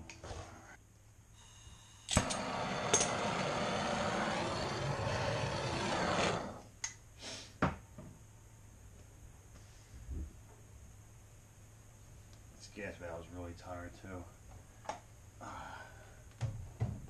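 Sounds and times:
gas torch ignition click: 2.1 - 5.6
torch flame hissing: 2.1 - 6.8.

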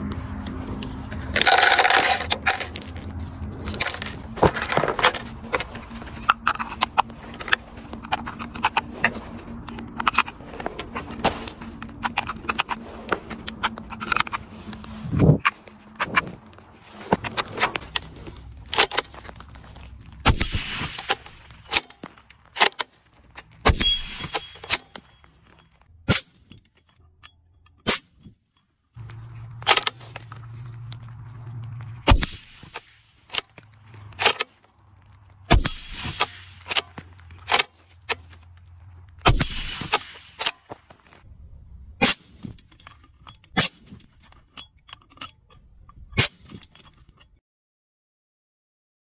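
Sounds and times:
metallic clinks: 1.3 - 6.8, 23.8 - 34.4, 42.0 - 47.4.

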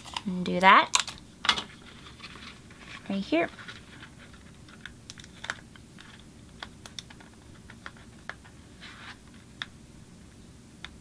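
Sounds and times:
paper rustle: 1.7 - 6.2.

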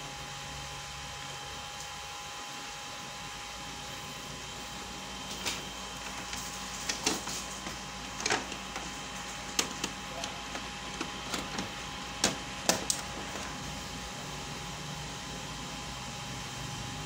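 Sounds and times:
printer hum: 0.0 - 17.0
plastic parts clicking and knocking: 9.5 - 13.0.

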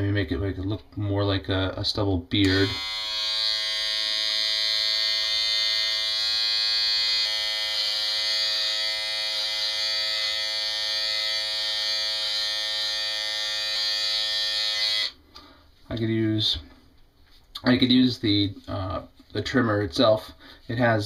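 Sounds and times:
trimmer buzzing: 2.4 - 15.2.

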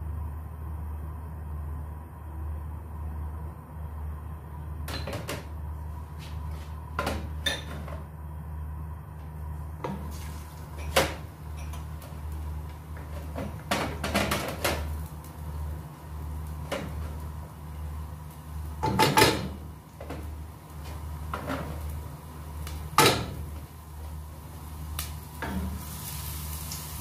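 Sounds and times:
steady low hum: 0.0 - 27.0
garlic sizzling in oil: 9.8 - 27.0.

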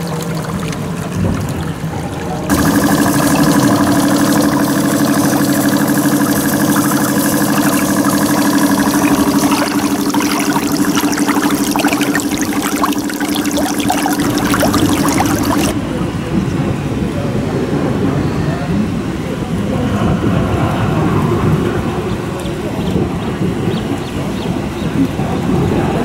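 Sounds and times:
small steam engine running: 2.5 - 15.7
crackling and sputtering: 2.5 - 15.8.

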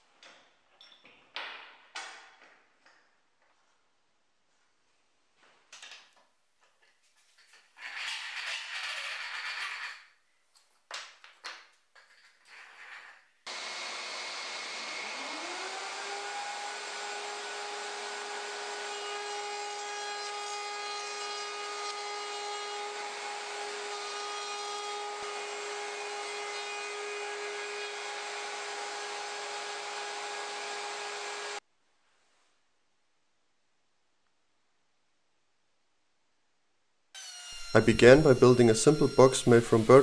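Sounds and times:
dust extractor rushing: 13.5 - 18.1
router motor whine: 13.5 - 20.4, 37.2 - 40.0.

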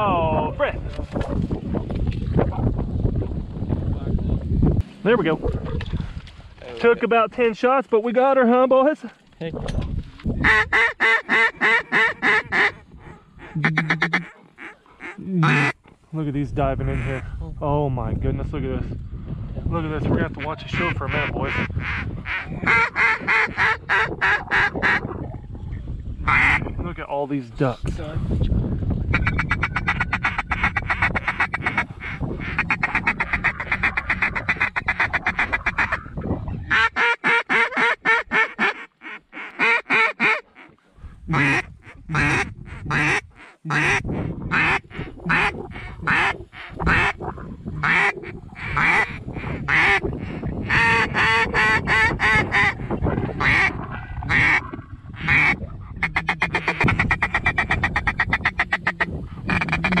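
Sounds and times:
duck call quacks: 10.4 - 12.8, 13.4 - 15.8, 20.8 - 25.0, 26.3 - 26.6, 29.1 - 36.0, 36.7 - 47.2, 47.8 - 52.8, 53.4 - 60.0
duck call chatter: 10.4 - 15.8, 20.8 - 25.0, 26.3 - 26.6, 29.1 - 36.1, 36.7 - 47.2, 47.8 - 52.8, 53.4 - 60.0.

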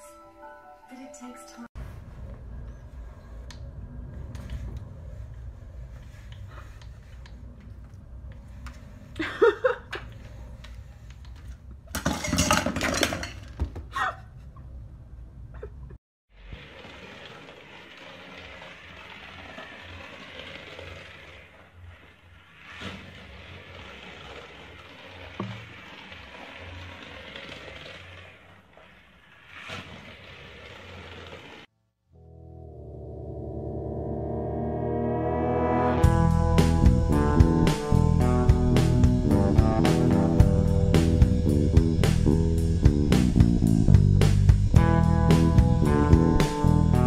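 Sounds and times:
metal bowls clattering on floor: 11.9 - 13.8
toy car whirring and rattling: 16.5 - 31.7.

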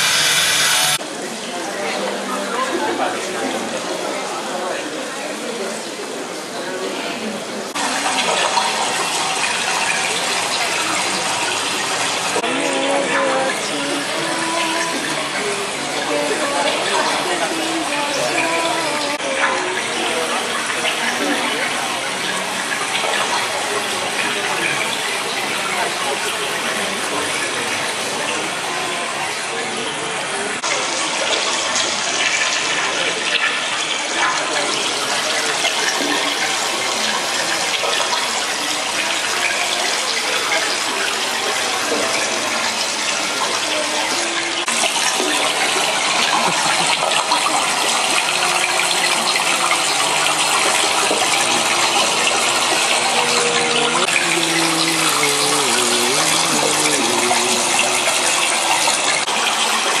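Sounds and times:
rushing water: 0.0 - 60.0
faint pitched tones: 48.3 - 59.2.

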